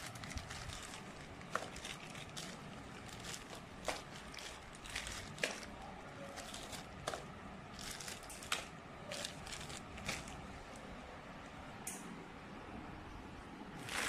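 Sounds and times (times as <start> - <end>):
plastic bags rustling and crinkling: 0.0 - 10.9, 13.8 - 14.0.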